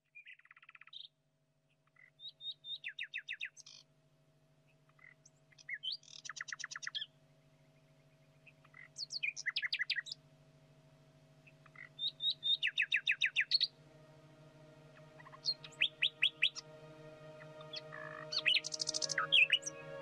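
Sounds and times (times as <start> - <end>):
bird chirping: 2.0 - 3.8, 5.0 - 10.2, 11.4 - 20.0.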